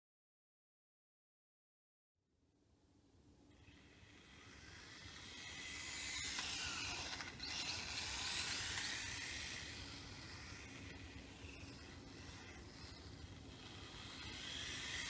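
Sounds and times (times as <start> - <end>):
small electric motor whine: 3.4 - 15.0.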